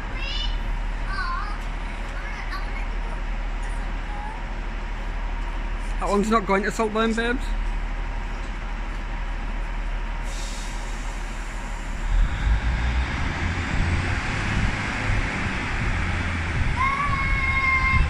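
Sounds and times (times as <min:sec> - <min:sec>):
train diesel engines rumbling: 0:00.0 - 0:18.0
air brakes hissing: 0:10.2 - 0:13.3.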